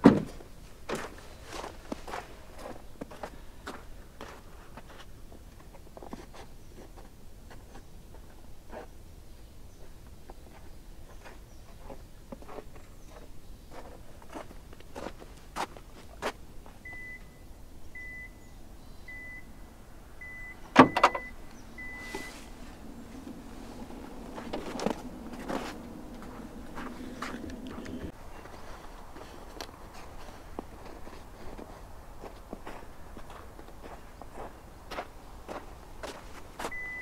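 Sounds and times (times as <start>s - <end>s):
steady low hum: 16.4s - 32.2s
car electronic chime beeping: 16.9s - 19.6s, 20.2s - 22.4s, 36.7s - 37.0s.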